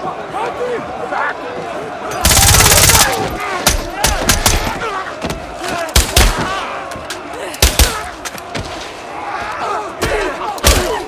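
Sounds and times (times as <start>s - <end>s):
crowd of men shouting: 0.0s - 11.0s
rapid automatic gunfire: 2.2s - 3.2s.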